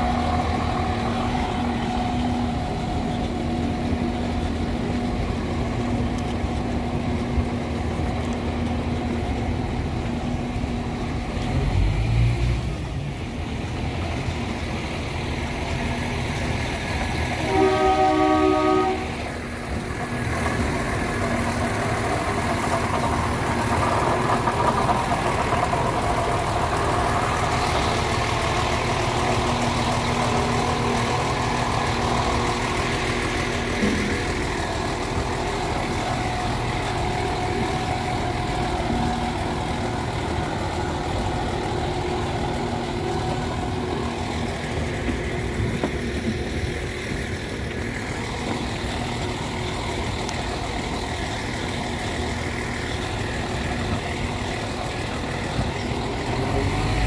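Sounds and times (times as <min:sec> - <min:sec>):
diesel train passing slowly: 0:00.0 - 0:57.0
train wheels rolling on rails: 0:00.0 - 0:57.0
train horn: 0:17.4 - 0:19.3.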